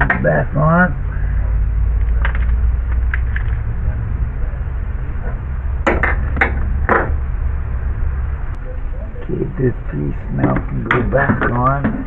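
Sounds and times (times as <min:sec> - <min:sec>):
sharp knocks of engine parts: 0:00.0 - 0:00.3, 0:02.0 - 0:03.6, 0:05.2 - 0:07.2, 0:10.4 - 0:12.0
steady low rumble: 0:00.0 - 0:12.0
engine parts clicking: 0:01.9 - 0:03.7.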